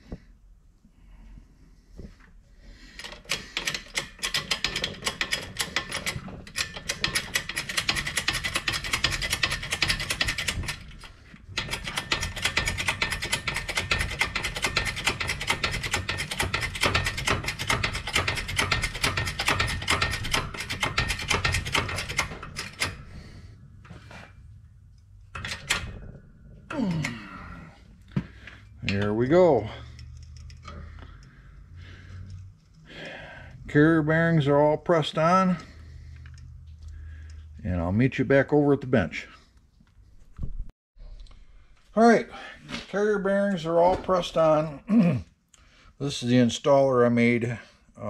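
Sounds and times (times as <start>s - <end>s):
shop press mechanical clatter: 3.0s - 23.1s.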